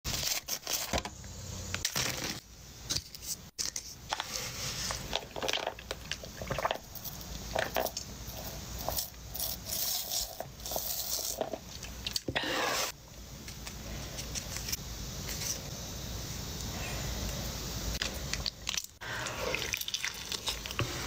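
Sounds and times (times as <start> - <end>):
plastic packaging crinkling: 19.6 - 21.0.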